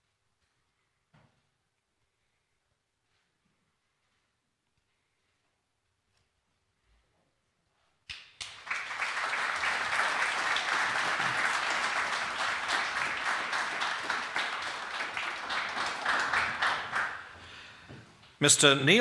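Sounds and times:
audience applause: 8.4s - 17.8s.

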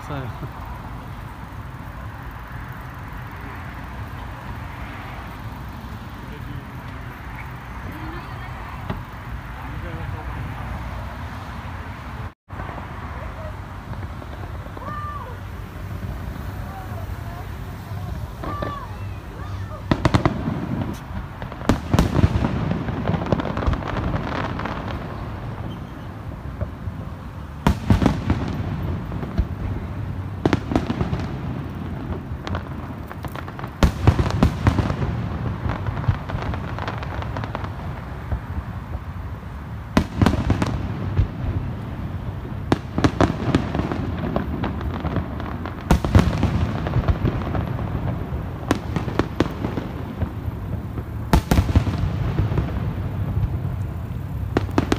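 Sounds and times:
rumble of overlapping reports: 0.0s - 11.7s.

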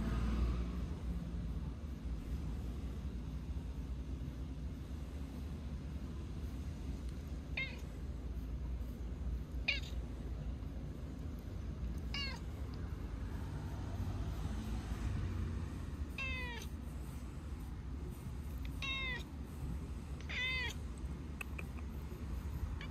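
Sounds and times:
cat meowing: 7.5s - 7.9s, 9.6s - 10.0s, 11.9s - 12.6s, 16.2s - 16.7s, 18.6s - 19.3s, 20.2s - 20.8s.

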